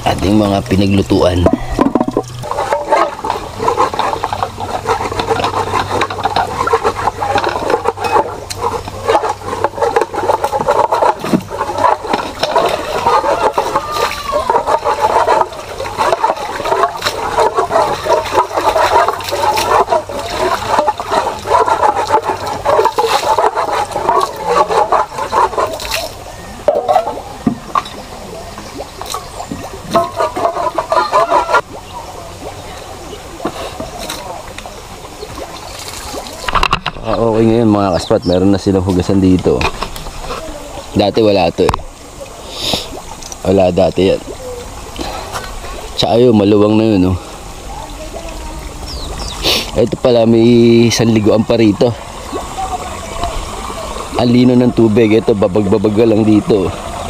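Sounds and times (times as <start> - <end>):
pots and utensils being washed: 0.0 - 57.0
tap water running and splashing: 0.2 - 26.2.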